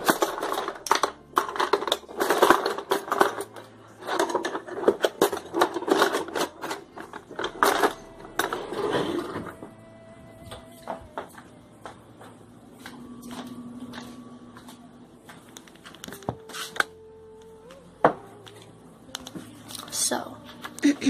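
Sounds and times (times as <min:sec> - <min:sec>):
kitchen items clattering: 0:00.0 - 0:09.8.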